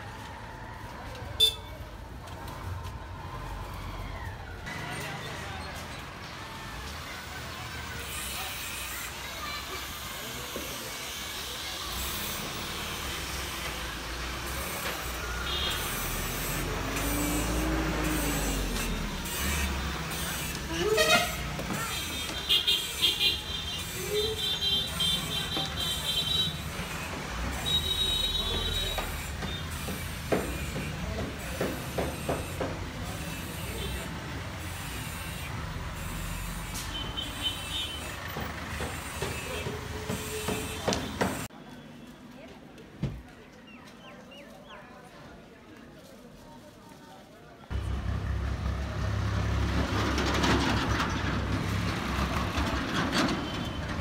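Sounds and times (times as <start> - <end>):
vehicle engines rumbling: 0.0 - 42.4, 47.7 - 54.0
street hubbub: 0.0 - 54.0
passing engine: 15.3 - 20.8, 47.7 - 54.0.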